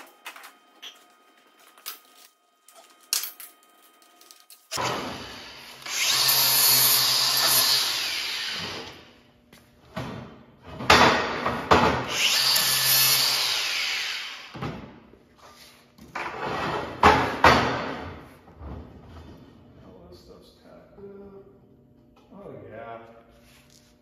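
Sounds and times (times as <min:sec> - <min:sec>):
angle grinder on steel: 0:04.7 - 0:08.9.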